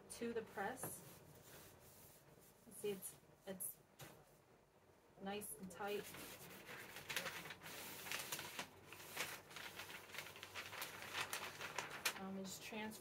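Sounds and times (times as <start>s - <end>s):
paper rustling and crinkling: 5.8s - 13.0s.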